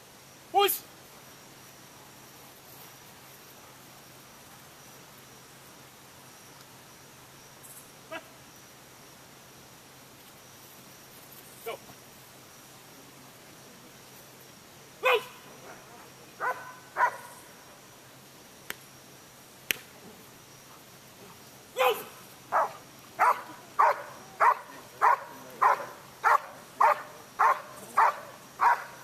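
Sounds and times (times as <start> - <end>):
dog barking: 16.4 - 17.3, 21.8 - 29.0.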